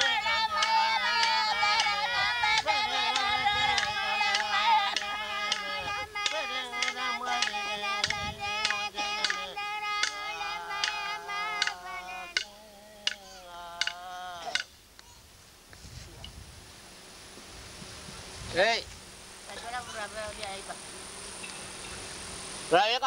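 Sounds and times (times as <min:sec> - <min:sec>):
voices singing long wavering notes: 0:00.0 - 0:14.8
steady beat of sharp strikes: 0:02.6 - 0:14.7.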